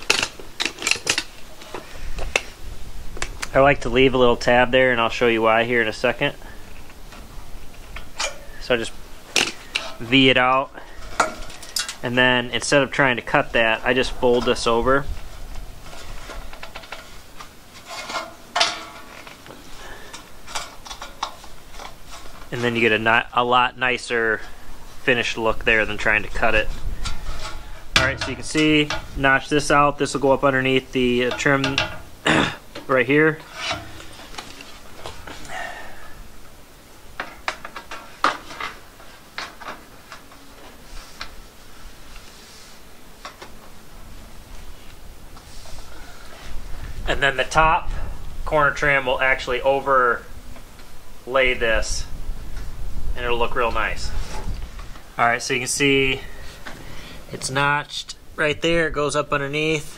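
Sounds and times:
sheet metal crinkling and clicking: 0.0s - 2.5s, 6.8s - 23.0s, 25.9s - 32.1s, 32.7s - 35.5s
sheet metal snapping: 17.9s - 19.3s.

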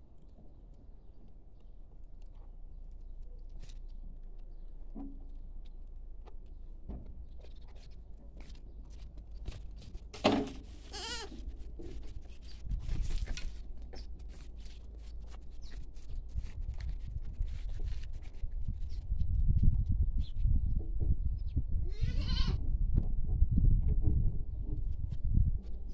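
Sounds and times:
goats bleating: 10.9s - 11.4s.

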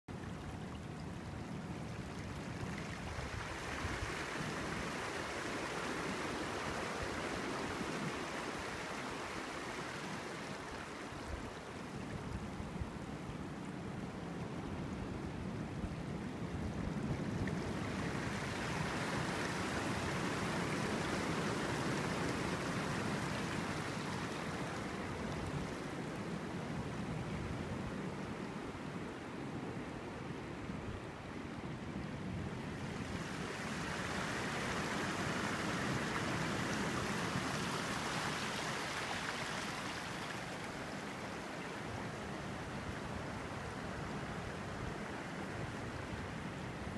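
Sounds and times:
surf rushing over reef: 0.4s - 46.9s.

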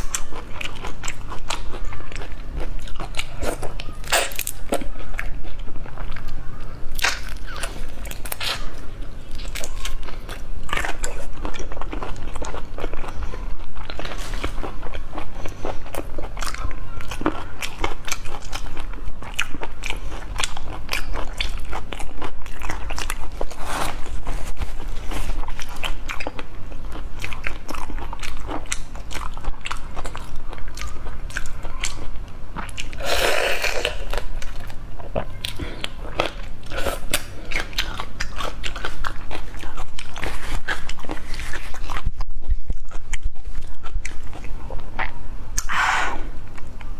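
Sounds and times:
chewing and crunching: 0.0s - 45.8s, 46.4s - 46.9s
wet mouth clicks: 45.0s - 46.9s.

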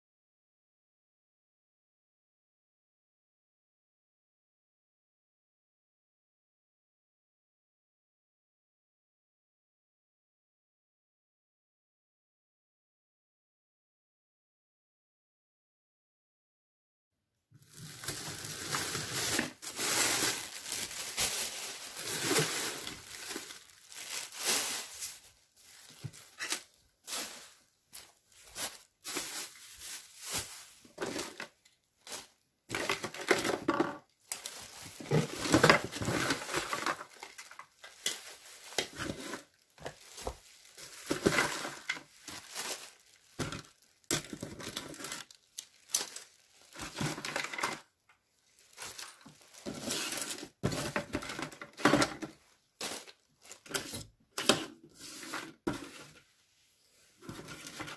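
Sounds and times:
plastic bags crinkling: 17.6s - 54.1s.

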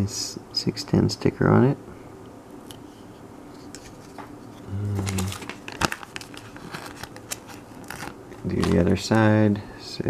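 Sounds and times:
sticker sheet crinkling: 4.9s - 9.0s.

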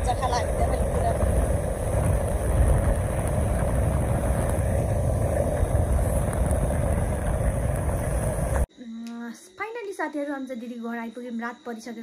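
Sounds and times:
vehicle engine and road rumble: 0.0s - 8.7s.

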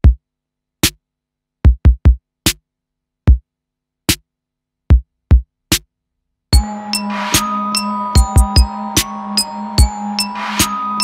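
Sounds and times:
drum machine kick and snare hits: 1.6s - 2.6s, 4.9s - 5.9s, 8.2s - 9.2s.

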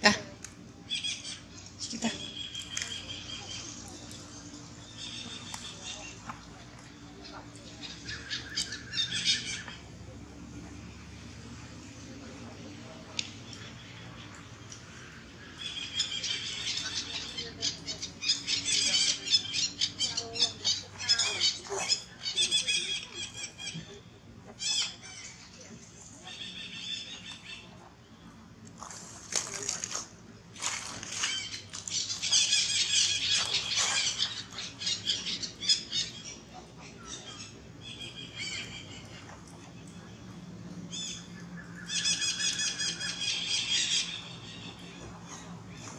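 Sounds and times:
high-pitched chirping calls: 15.4s - 24.0s, 31.0s - 39.4s, 40.9s - 45.5s.

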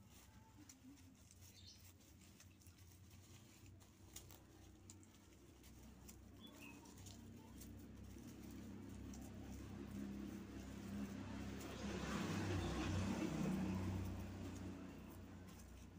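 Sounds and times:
dry stalks crackling: 0.0s - 15.9s.

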